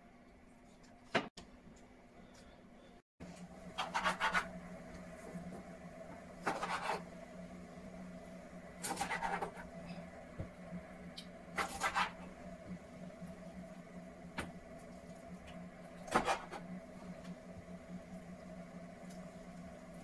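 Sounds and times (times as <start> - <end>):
steady low hum: 0.0 - 20.0
knife scraping raw chicken: 6.4 - 7.0.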